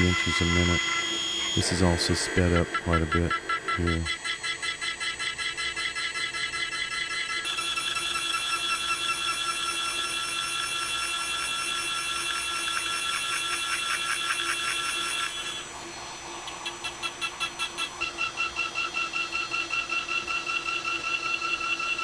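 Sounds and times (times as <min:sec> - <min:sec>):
quiet pulsing sound: 0:00.0 - 0:07.4
milling spindle high whine: 0:00.0 - 0:15.7.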